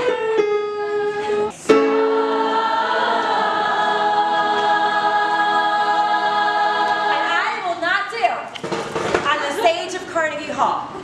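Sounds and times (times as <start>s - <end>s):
girls' choir singing: 0.6s - 7.8s.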